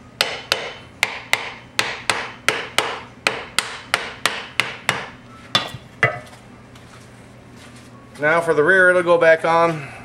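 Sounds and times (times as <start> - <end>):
hammer striking metal: 0.2 - 6.2.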